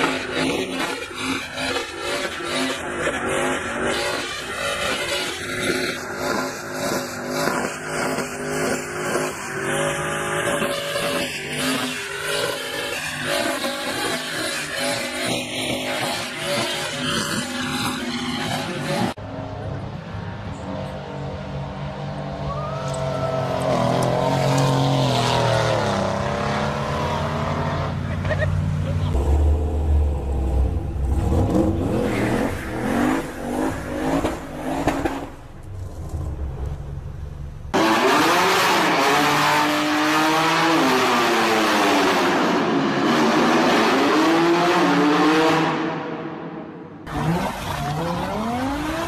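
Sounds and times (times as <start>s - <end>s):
car engine revving: 23.0s - 49.0s.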